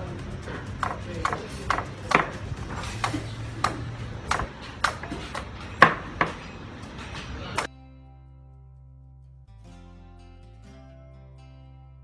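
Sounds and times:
machete chopping coconut: 0:00.7 - 0:06.5.

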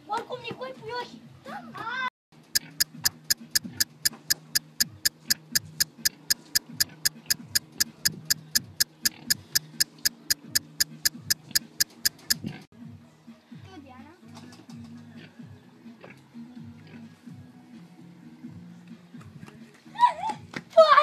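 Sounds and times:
rapid clock ticking: 0:02.6 - 0:12.5.

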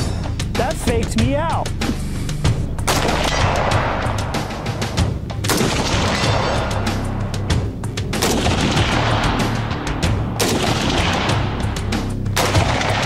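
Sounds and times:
background music with heavy bass: 0:00.0 - 0:13.0
gunshots: 0:02.8 - 0:07.0, 0:08.1 - 0:11.8, 0:12.4 - 0:13.0.

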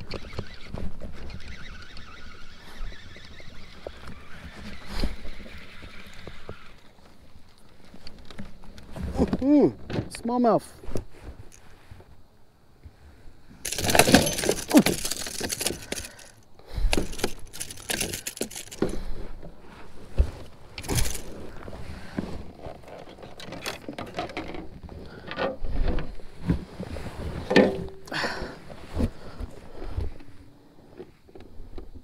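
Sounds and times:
lure and gear rattling: 0:13.6 - 0:19.4, 0:20.7 - 0:21.8, 0:22.4 - 0:25.6.

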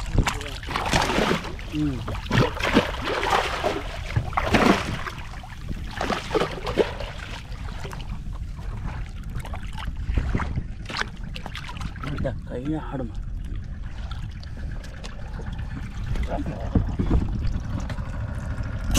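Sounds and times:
fish thrashing in water: 0:00.0 - 0:12.2
steady low rumble: 0:00.0 - 0:18.9
water splashing against boat: 0:00.0 - 0:18.9.

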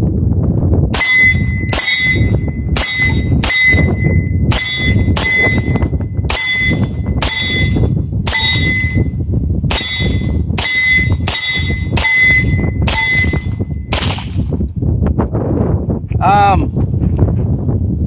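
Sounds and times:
wind rumble on microphone: 0:00.0 - 0:18.0
metallic ring: 0:01.0 - 0:14.0
pistol shots: 0:13.9 - 0:14.4.

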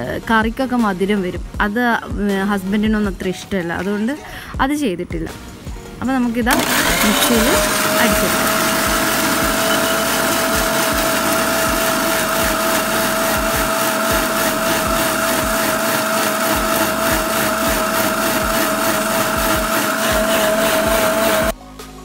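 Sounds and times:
mixer grinder whining: 0:06.5 - 0:21.6.

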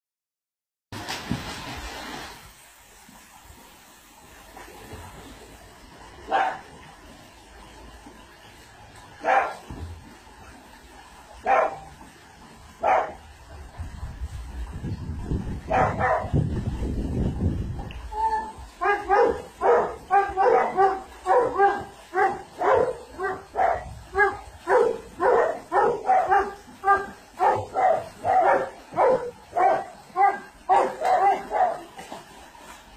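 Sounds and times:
dog barking: 0:06.3 - 0:06.6, 0:09.2 - 0:09.6, 0:11.4 - 0:11.8, 0:12.8 - 0:13.2, 0:15.7 - 0:16.3, 0:18.8 - 0:31.8.

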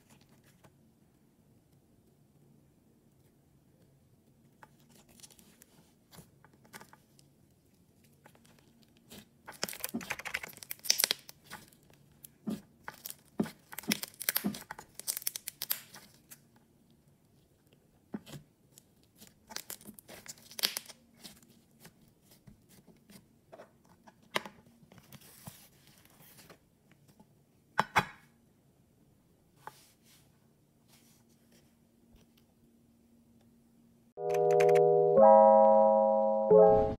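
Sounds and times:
slime sticky crackles and pops: 0:09.1 - 0:11.7, 0:12.8 - 0:16.0, 0:19.2 - 0:21.0.

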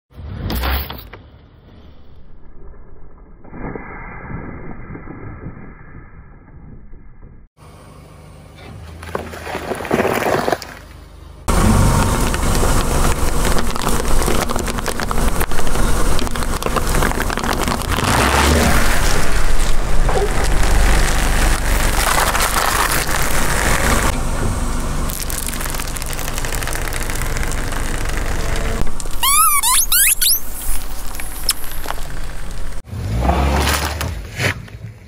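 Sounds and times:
wrapper crackling under tyre: 0:09.0 - 0:24.1, 0:25.1 - 0:32.8
tyre crushing plastic cups: 0:12.0 - 0:23.8.

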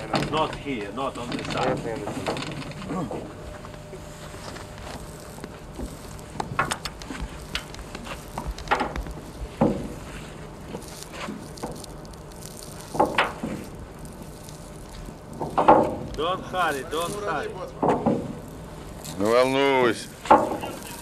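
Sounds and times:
rope ladder knocks and creaks: 0:00.0 - 0:03.3, 0:04.8 - 0:11.9, 0:12.6 - 0:16.7, 0:17.8 - 0:18.5, 0:20.2 - 0:21.0.

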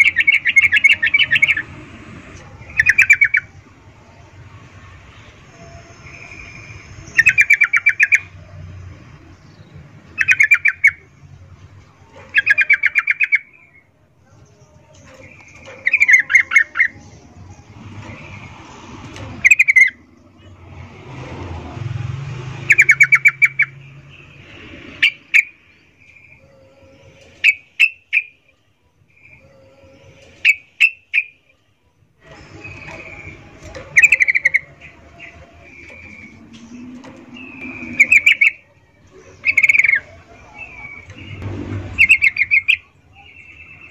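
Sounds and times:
bird rapid chattering calls: 0:10.1 - 0:11.1, 0:32.6 - 0:38.7.

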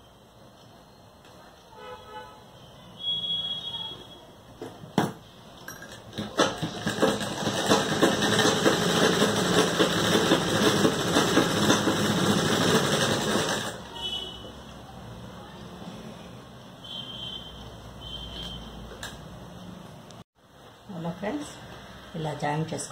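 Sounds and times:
sewing machine rattling: 0:05.7 - 0:13.9.

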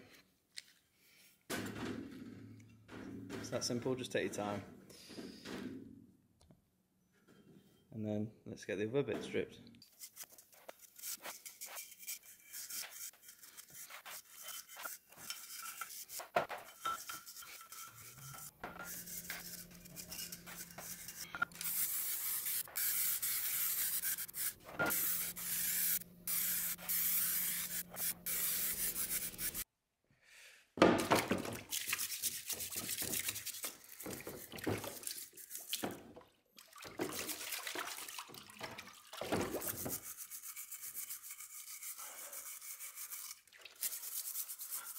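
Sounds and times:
metal scraper scratching paint: 0:09.9 - 0:29.6, 0:39.6 - 0:44.9
aerosol can hissing: 0:21.5 - 0:29.6
water splashing and dripping: 0:31.2 - 0:39.9, 0:43.3 - 0:43.8.

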